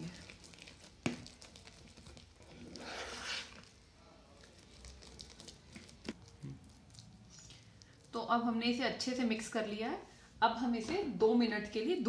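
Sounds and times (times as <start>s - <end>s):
spoon stirring thick mixture: 0.0s - 9.6s.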